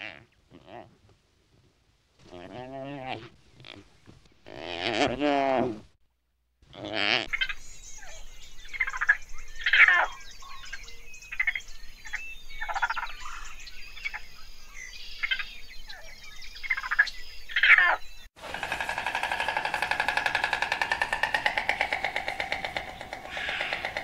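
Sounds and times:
raccoons chittering: 0:18.4 - 0:24.0.

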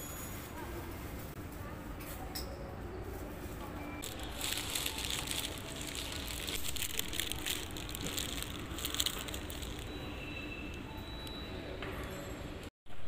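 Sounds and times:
paper wrapper crinkling: 0:04.0 - 0:09.9.

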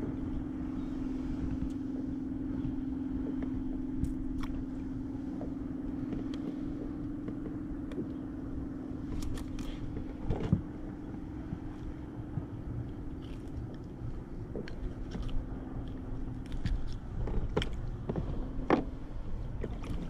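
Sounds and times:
motor hum: 0:00.0 - 0:20.0.

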